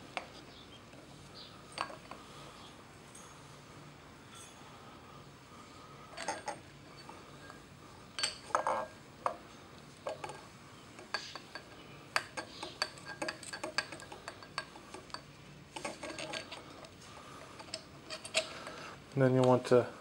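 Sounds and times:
small clicks and metallic clinks: 6.1 - 7.6, 10.0 - 19.6.

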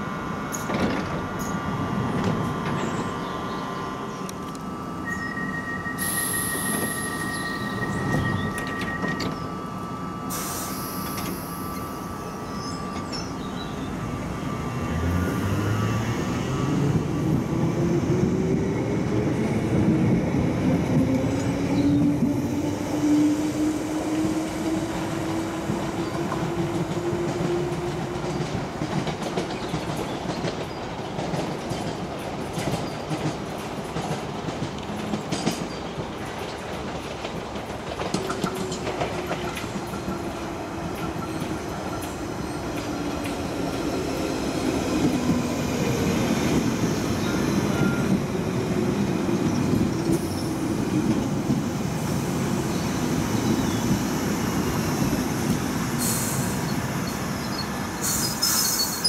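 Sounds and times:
train motor whine: 0.9 - 17.6
wheels clicking over rail joints: 25.7 - 43.4
wheel squeal: 57.5 - 59.0.

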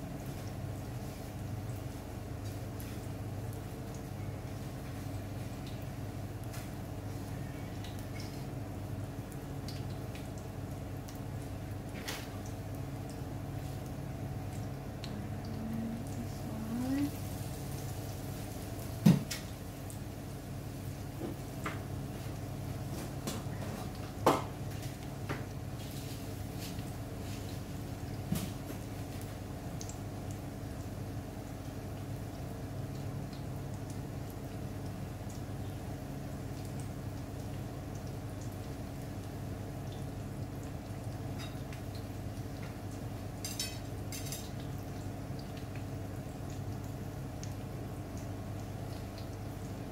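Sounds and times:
fish frying in hot oil: 0.0 - 49.9
steady low hum: 12.8 - 18.5.

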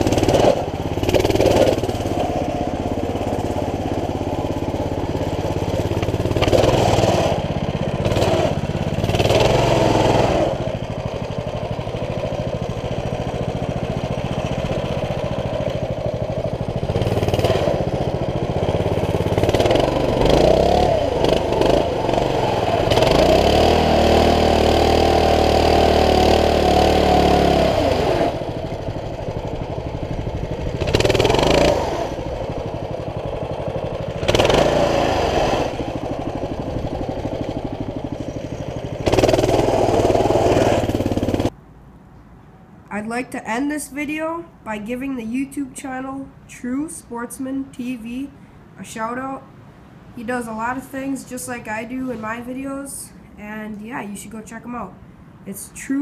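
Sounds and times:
small engine revving: 0.0 - 41.6.

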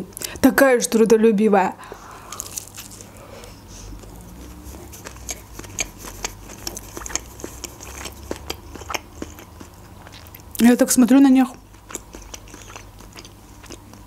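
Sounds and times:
wet chewing mouth clicks: 3.9 - 10.8, 11.4 - 14.0.

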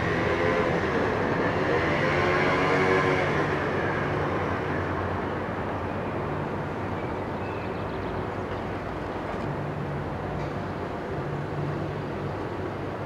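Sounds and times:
vehicle passing by: 0.0 - 5.0
low traffic rumble: 0.0 - 13.0.

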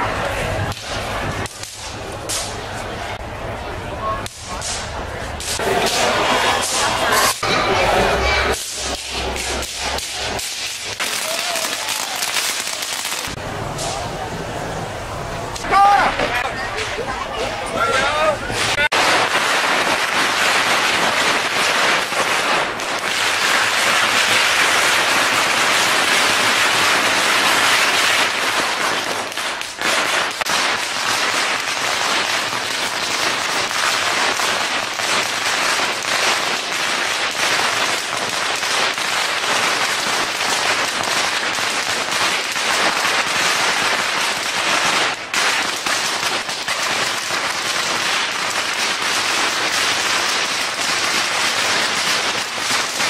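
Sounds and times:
firecrackers crackling: 0.0 - 53.0.

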